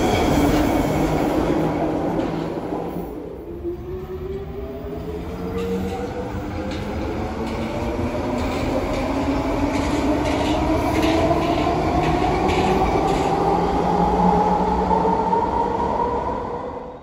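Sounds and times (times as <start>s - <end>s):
wheels rumbling on rails: 4.4s - 14.8s.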